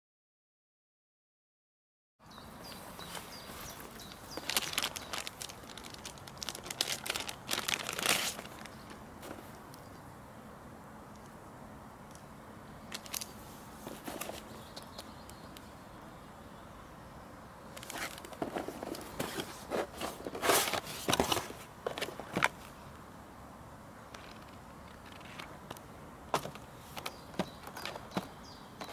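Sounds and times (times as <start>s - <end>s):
bird chirping: 2.2s - 9.0s, 14.2s - 18.2s, 26.6s - 28.9s
cardboard and packaging rustling: 2.7s - 9.6s, 13.0s - 14.7s, 17.8s - 22.7s
plastic bag crinkling: 3.5s - 9.0s.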